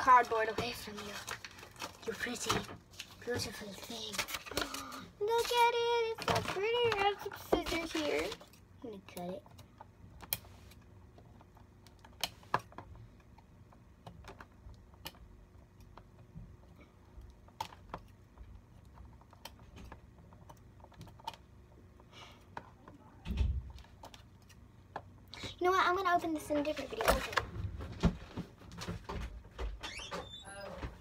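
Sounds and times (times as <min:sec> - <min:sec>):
packaging rustling: 0:00.0 - 0:08.6.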